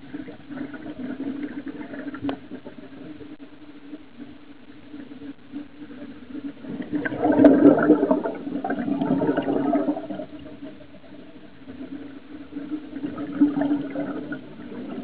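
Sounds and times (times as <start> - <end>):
steady low hum: 0.0 - 15.0
gurgling exhaust bubbles: 5.4 - 15.0.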